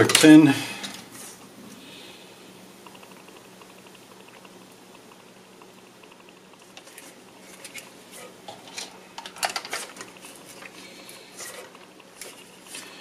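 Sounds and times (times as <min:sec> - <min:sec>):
hands handling plastic parts: 0:06.8 - 0:12.9.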